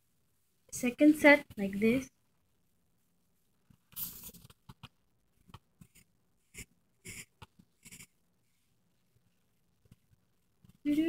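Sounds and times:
pencil scratching on paper: 0:04.0 - 0:08.7.

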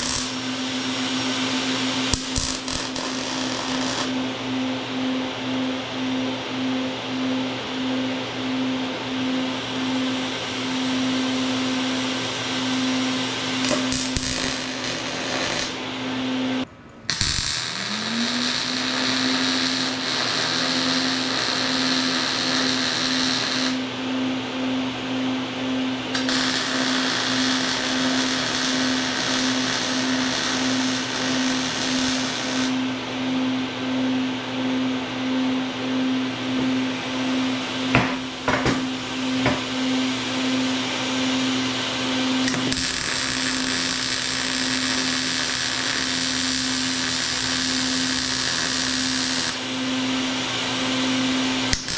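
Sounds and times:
welding arc crackling hiss: 0:00.0 - 0:04.2, 0:13.6 - 0:15.8, 0:17.1 - 0:23.9, 0:26.1 - 0:32.8, 0:42.4 - 0:49.7, 0:51.7 - 0:51.9.

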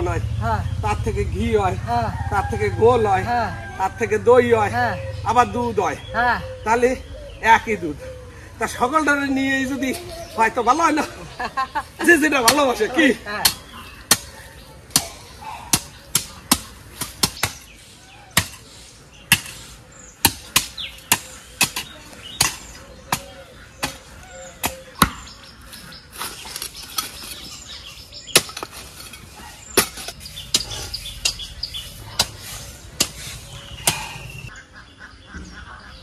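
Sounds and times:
hoe blades chopping into dirt: 0:14.9 - 0:17.7, 0:18.4 - 0:18.7, 0:19.3 - 0:19.6, 0:20.2 - 0:25.3, 0:26.1 - 0:34.3.

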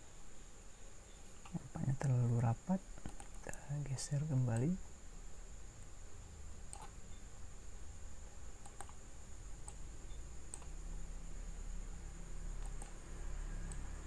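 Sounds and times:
low hum: 0:00.0 - 0:14.0
mouse and keyboard clicks: 0:03.0 - 0:03.5, 0:06.7 - 0:07.0, 0:08.6 - 0:09.0, 0:10.5 - 0:10.8, 0:12.6 - 0:13.0.

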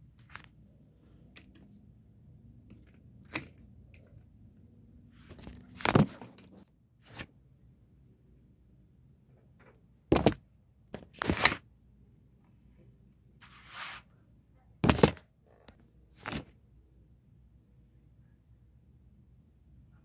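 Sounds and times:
rustling scrape: 0:13.4 - 0:14.2.

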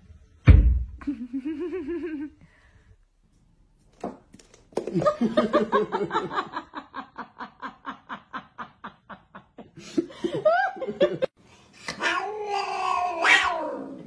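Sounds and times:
person laughing: 0:01.0 - 0:02.4.

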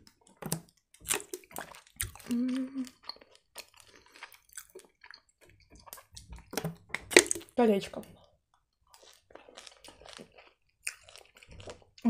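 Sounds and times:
wet chewing mouth clicks: 0:00.5 - 0:07.5
person humming: 0:02.2 - 0:03.0.

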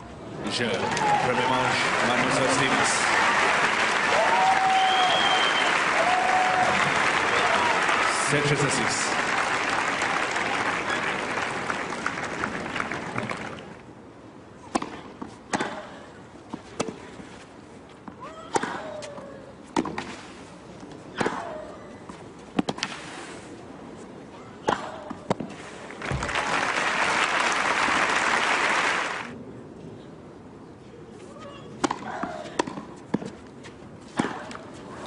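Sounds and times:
crowd applauding: 0:00.8 - 0:13.8, 0:25.9 - 0:29.4
racket hitting tennis ball: 0:34.1 - 0:34.6.

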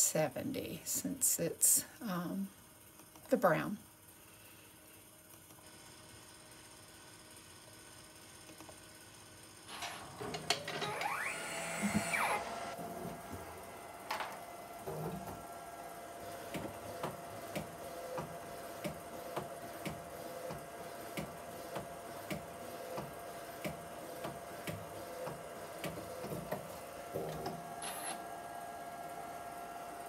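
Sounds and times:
printer mechanical whine: 0:09.7 - 0:30.0.

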